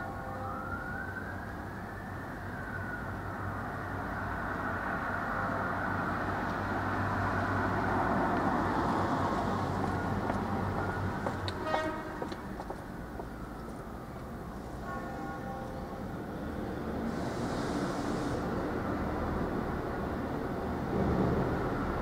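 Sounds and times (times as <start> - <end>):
vehicle passing: 4.3 - 13.5
short horn toot: 11.6 - 12.3.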